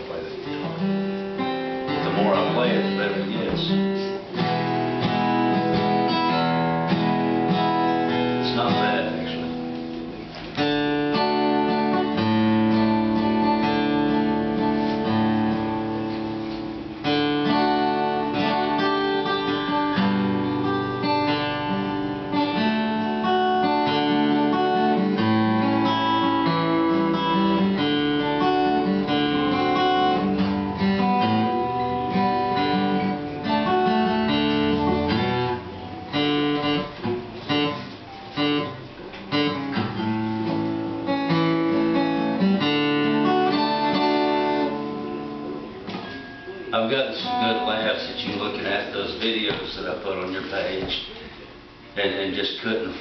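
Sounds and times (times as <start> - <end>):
acoustic guitar strumming: 0.0 - 53.0.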